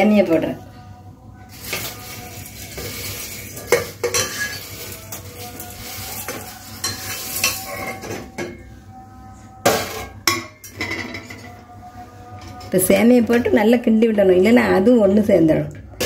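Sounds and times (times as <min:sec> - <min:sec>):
rustle of dry noodles: 0:01.5 - 0:03.6.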